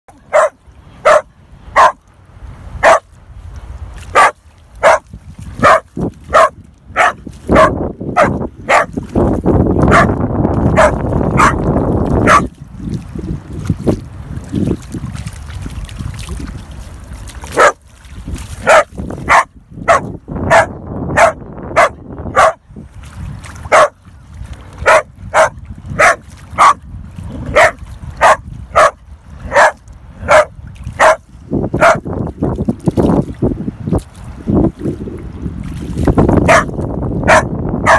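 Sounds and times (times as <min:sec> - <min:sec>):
dog barking: 0:00.3 - 0:02.0, 0:02.8 - 0:03.0, 0:04.2 - 0:05.0, 0:05.6 - 0:08.9, 0:09.9 - 0:10.2, 0:10.8 - 0:11.6, 0:12.2 - 0:12.5, 0:17.6 - 0:17.8, 0:18.6 - 0:22.6, 0:23.7 - 0:24.0, 0:24.8 - 0:26.8, 0:27.5 - 0:31.2, 0:31.8 - 0:32.0, 0:36.5 - 0:37.9.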